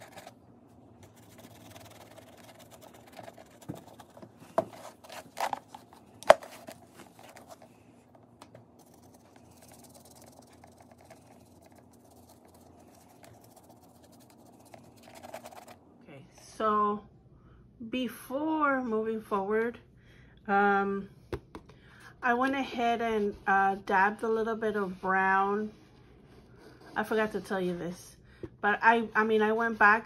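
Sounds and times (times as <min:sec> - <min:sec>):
paintbrush scratching strokes: 0:00.0 - 0:00.3, 0:01.0 - 0:05.3, 0:08.7 - 0:15.8.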